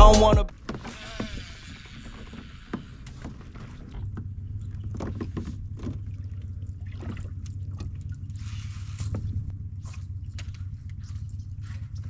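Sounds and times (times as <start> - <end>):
boat motor humming: 0.0 - 12.0.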